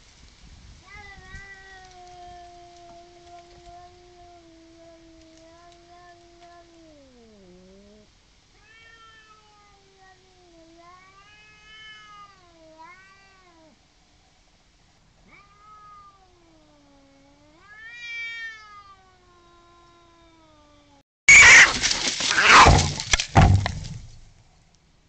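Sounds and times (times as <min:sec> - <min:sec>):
cats yowling: 0:00.9 - 0:13.8, 0:15.2 - 0:23.0
cats fighting: 0:21.3 - 0:24.2.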